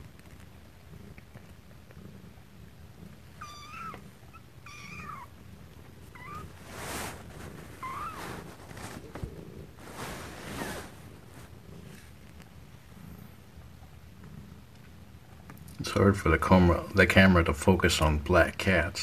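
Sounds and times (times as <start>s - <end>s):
low steady rumble: 0.0s - 19.0s
kittens mewing: 3.3s - 5.4s, 6.0s - 9.3s
rustling on a towel: 4.8s - 12.4s.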